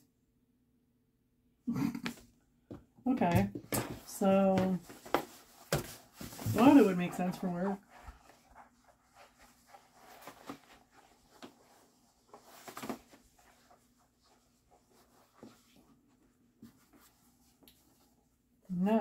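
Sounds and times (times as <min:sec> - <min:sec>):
mat rustling as it is folded: 0:03.9 - 0:18.4.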